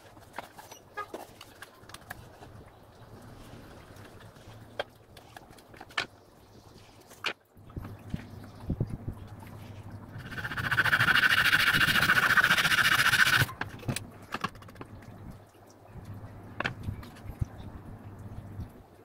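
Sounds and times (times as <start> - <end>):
steel blade scraping wood: 10.2 - 13.5
handling knocks and clicks: 13.5 - 15.0.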